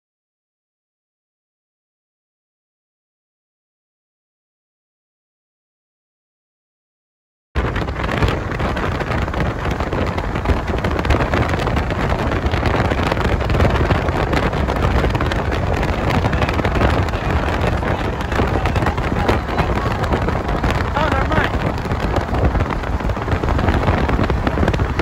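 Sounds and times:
car road noise: 7.6 - 25.0
wind buffeting microphone: 7.6 - 25.0.

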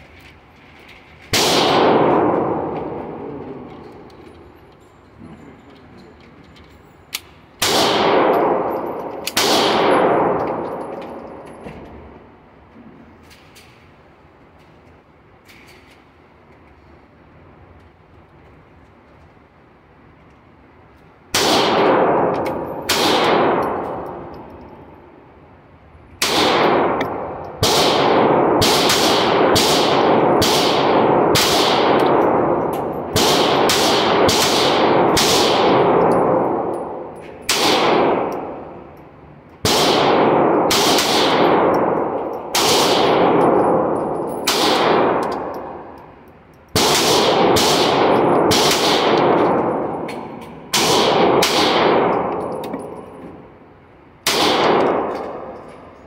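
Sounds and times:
pistol shots with echo: 1.3 - 4.2, 7.6 - 11.4, 21.3 - 24.8, 26.2 - 38.9, 39.6 - 46.0, 46.8 - 53.5, 54.2 - 55.9.

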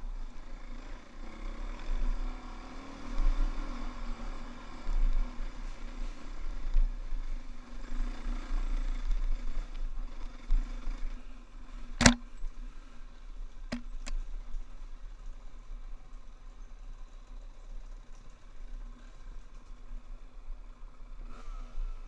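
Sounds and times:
dirt bike engine running: 5.2 - 12.8.

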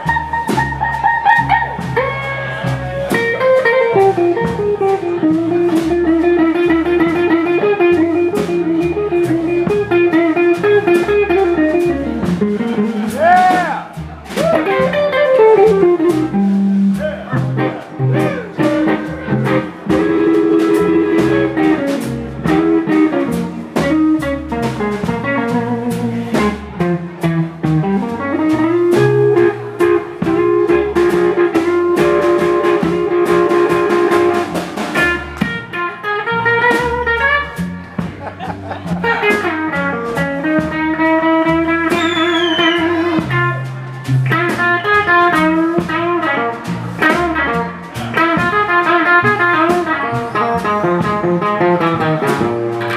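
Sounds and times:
electric guitar solo: 0.0 - 13.5, 14.4 - 52.9
bass guitar: 0.0 - 52.9
drums: 0.0 - 52.9.

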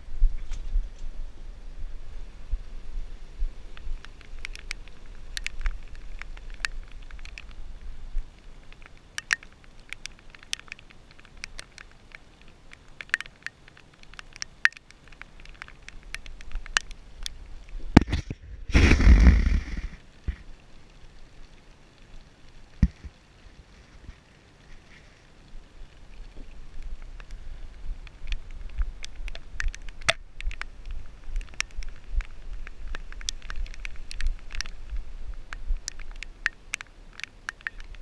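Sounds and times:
camera scraping rustle: 0.3 - 1.2, 15.2 - 20.5, 22.8 - 25.5
light taps and clicks: 3.8 - 7.6, 8.2 - 18.4, 28.0 - 34.9, 35.5 - 38.0.

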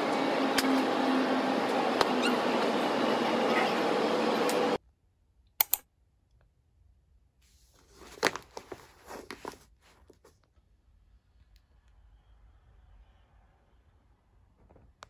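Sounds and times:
paper bag rustling and crinkling: 7.7 - 10.3.

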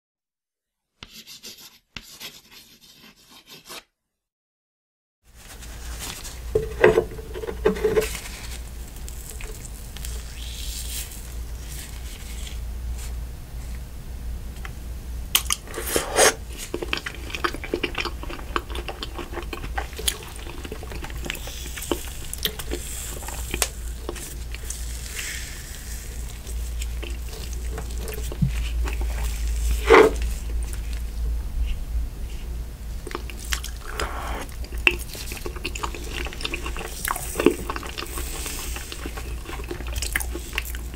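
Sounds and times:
chewing and lip smacks: 16.5 - 24.8, 26.3 - 31.1, 33.0 - 40.9
low hum: 20.8 - 34.9.

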